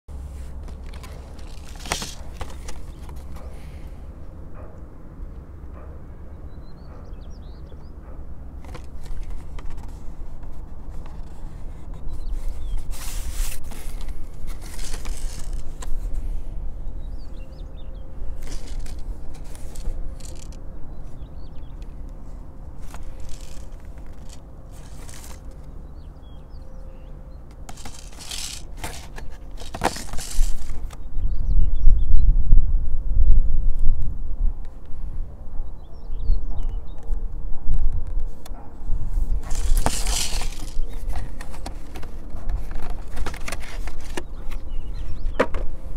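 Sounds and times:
low wind rumble: 0:00.1 - 0:45.9
cardboard box rustling and scraping: 0:00.2 - 0:03.8, 0:08.6 - 0:16.2, 0:18.4 - 0:20.6, 0:22.8 - 0:25.7, 0:27.5 - 0:31.0, 0:39.2 - 0:45.7.

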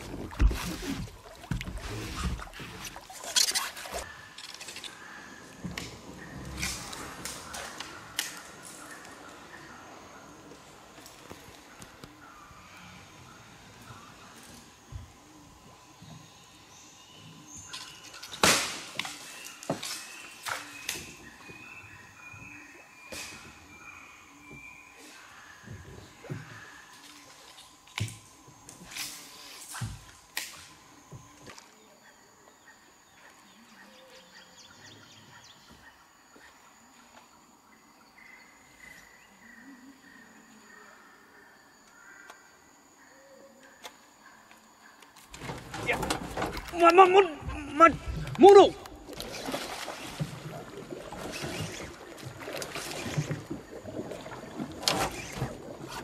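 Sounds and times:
water splashing around boat: 0:00.0 - 0:04.2, 0:45.2 - 0:56.0
knocks and swishes in a boat: 0:00.0 - 0:40.9, 0:43.6 - 0:56.0
insect chirps and ticks: 0:00.0 - 0:56.0.

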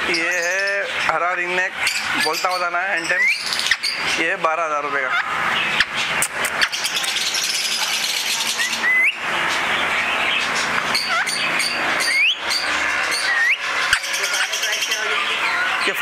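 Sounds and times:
caged birds chattering: 0:00.0 - 0:16.0
sharp rising whistles: 0:08.5 - 0:09.2, 0:10.9 - 0:15.7.

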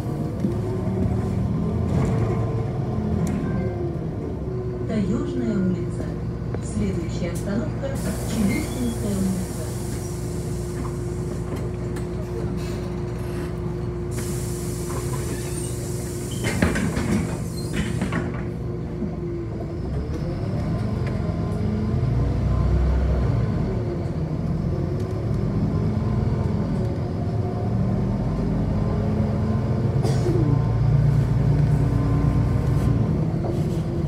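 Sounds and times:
bus engine hum: 0:00.0 - 0:34.0.

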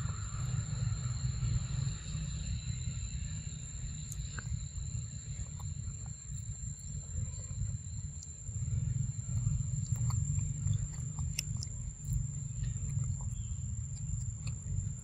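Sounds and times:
high insect drone: 0:00.0 - 0:15.0
monkey chewing fruit: 0:03.9 - 0:15.0.

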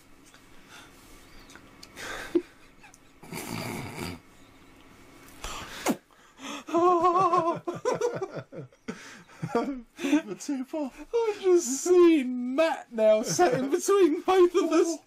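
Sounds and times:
men laughing wheezily: 0:02.0 - 0:03.8, 0:06.4 - 0:11.6, 0:13.1 - 0:14.1
loud high wavering laugh: 0:06.6 - 0:10.4.

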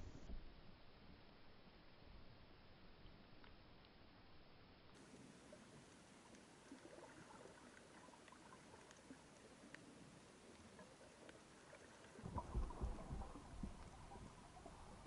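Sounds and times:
underwater ambience: 0:00.0 - 0:15.0
small crackling clicks: 0:03.0 - 0:04.1, 0:04.9 - 0:15.0
low rumbling water thumps: 0:12.2 - 0:15.0.

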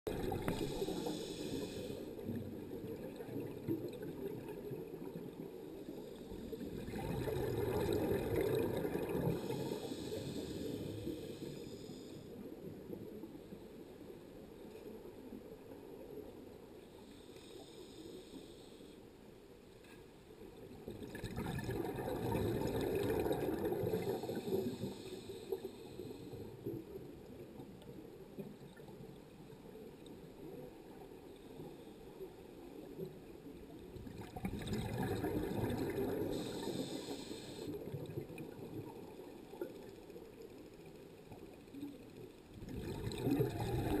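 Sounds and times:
scuba exhaust bubbles gurgling: 0:00.1 - 0:12.0, 0:20.8 - 0:29.1, 0:32.8 - 0:39.9, 0:42.6 - 0:44.0
water hiss: 0:00.2 - 0:02.4, 0:05.8 - 0:12.4, 0:17.0 - 0:19.0, 0:22.3 - 0:26.6, 0:35.4 - 0:38.3
breathing gas hiss: 0:00.5 - 0:02.2, 0:09.3 - 0:12.4, 0:17.1 - 0:19.0, 0:23.9 - 0:26.6, 0:36.2 - 0:37.8.

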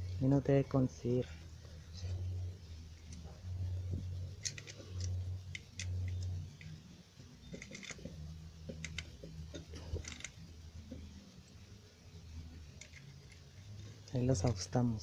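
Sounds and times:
low rumble: 0:00.0 - 0:06.9.

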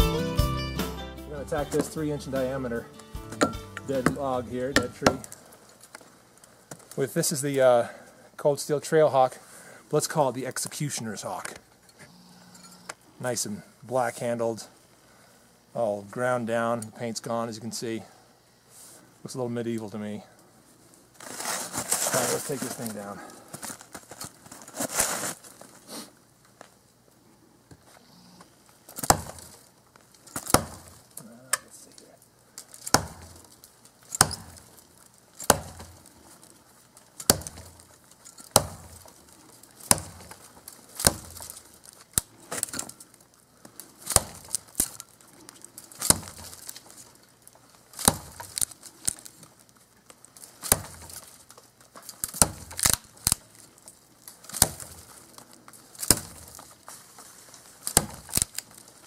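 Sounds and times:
tomahawk chopping wood: 0:01.7 - 0:05.5, 0:28.9 - 0:29.6, 0:30.3 - 0:31.1, 0:32.6 - 0:36.4, 0:37.0 - 0:43.0, 0:44.0 - 0:45.2, 0:45.8 - 0:47.1, 0:47.8 - 0:49.3, 0:50.4 - 0:53.6, 0:54.3 - 0:56.9, 0:57.6 - 0:58.8
wood splintering crackle: 0:03.9 - 0:07.7, 0:21.0 - 0:26.8, 0:28.4 - 0:59.0.

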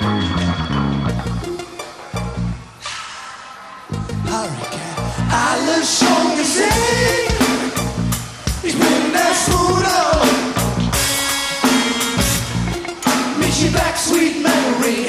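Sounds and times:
live band music through a pa: 0:00.0 - 0:15.0
drum kit steady beat: 0:05.4 - 0:15.0.

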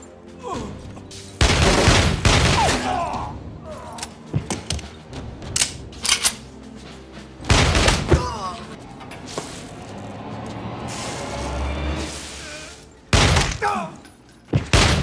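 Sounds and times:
gunfire and impacts: 0:01.4 - 0:02.8, 0:07.5 - 0:08.2, 0:13.1 - 0:13.6, 0:14.5 - 0:15.0.

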